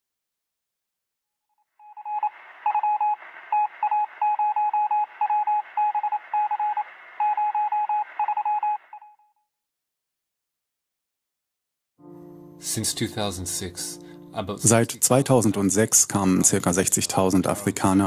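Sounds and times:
morse code beeping: 0:01.9 - 0:09.1
radio hiss: 0:02.0 - 0:08.4.

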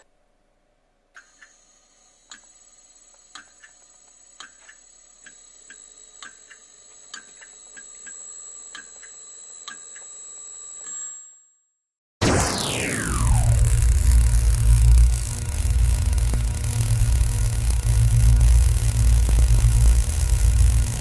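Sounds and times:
sharp ticks: 0:03.3 - 0:03.8, 0:13.1 - 0:21.0
servo motor whine: 0:12.2 - 0:21.0.

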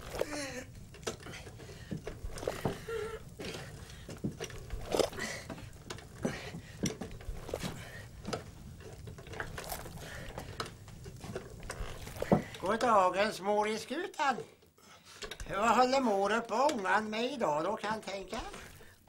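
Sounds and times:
small clattering: 0:00.0 - 0:13.0.

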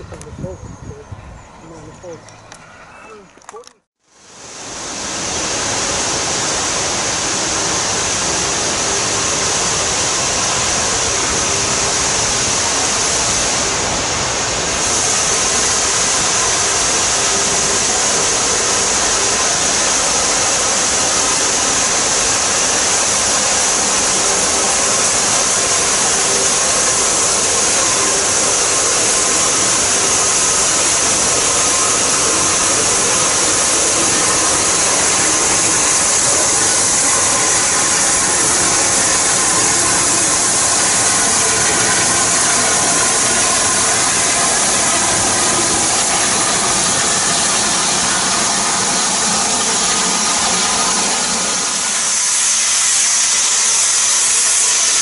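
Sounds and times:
steam locomotive hiss: 0:04.0 - 0:55.0.

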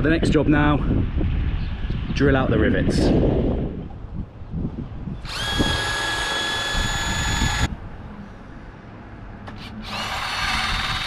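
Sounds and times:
power drill whine: 0:05.2 - 0:07.7, 0:09.6 - 0:11.0.

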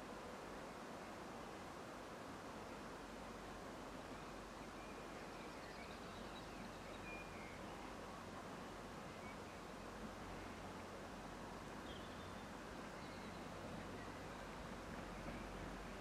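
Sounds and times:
outdoor background noise: 0:00.0 - 0:16.0
faint bird chirps: 0:04.1 - 0:08.0, 0:09.1 - 0:09.8, 0:11.8 - 0:15.7.

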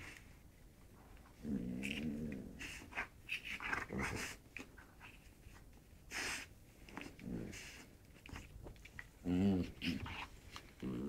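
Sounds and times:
dogs snorting and breathing: 0:01.2 - 0:11.0
dog growling low: 0:01.4 - 0:02.9, 0:07.0 - 0:07.9, 0:09.2 - 0:11.0.

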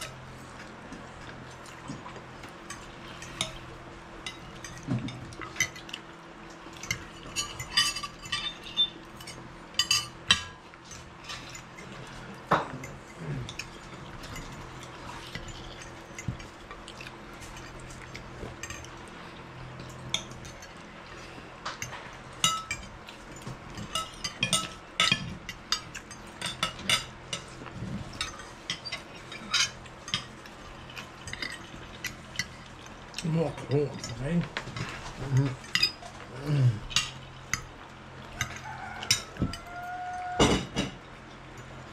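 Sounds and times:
cutlery clinking on plates: 0:06.7 - 0:16.4, 0:21.7 - 0:32.6, 0:36.9 - 0:41.7.

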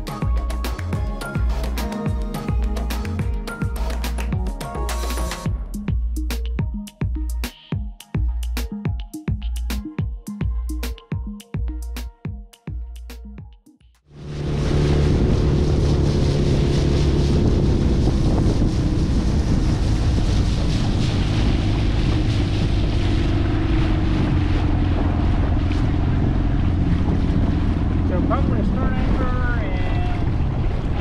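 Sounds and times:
outboard motor running: 0:14.1 - 0:29.6
water rushing: 0:14.1 - 0:31.0
wind buffeting microphone: 0:14.3 - 0:31.0.

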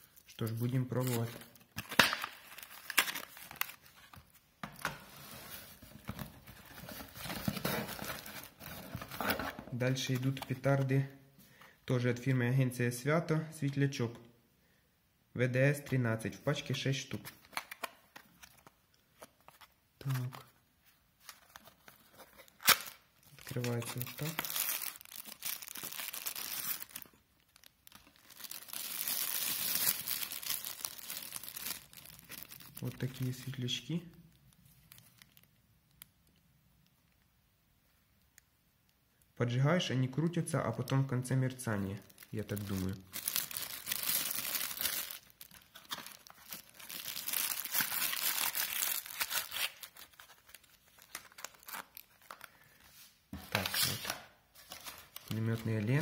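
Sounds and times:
plastic bag crinkling: 0:01.0 - 0:04.2, 0:22.4 - 0:33.3, 0:42.0 - 0:52.6.

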